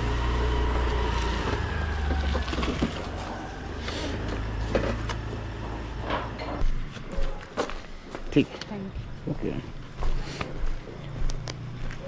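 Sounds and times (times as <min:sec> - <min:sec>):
low engine rumble: 0:00.0 - 0:06.9.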